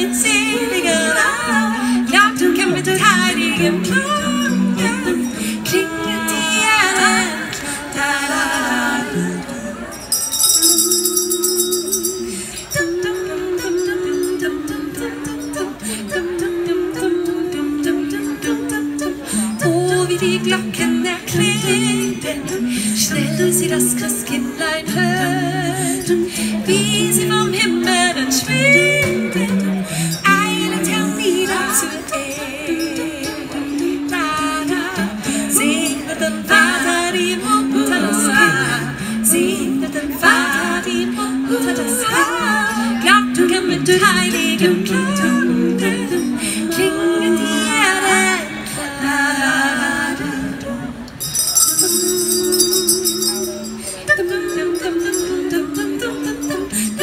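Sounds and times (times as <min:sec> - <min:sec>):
women singing in harmony: 0:00.0 - 0:57.0
handbells ringing: 0:09.6 - 0:16.2, 0:28.3 - 0:34.6, 0:51.1 - 0:57.0.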